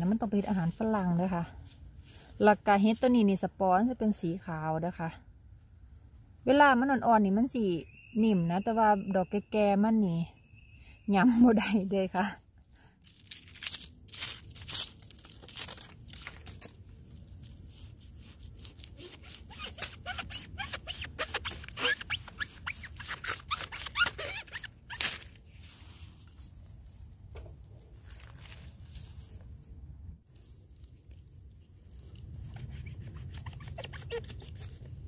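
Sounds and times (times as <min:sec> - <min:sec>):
dry leaves crackling and rustling: 0:13.0 - 0:20.8, 0:27.9 - 0:29.5
knife cutting fungus: 0:17.7 - 0:24.3, 0:32.1 - 0:35.0.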